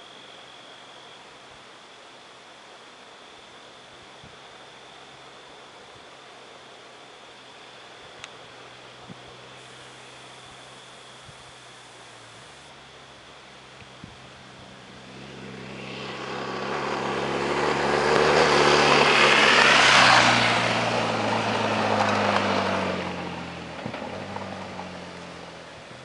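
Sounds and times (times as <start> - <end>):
motorcycle riding past on gravel: 14.6 - 26.0.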